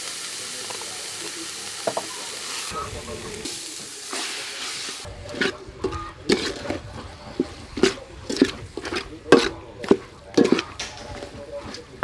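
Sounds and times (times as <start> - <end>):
metal ladle scraping pot: 5.2 - 11.8
meat squelching: 5.2 - 12.0.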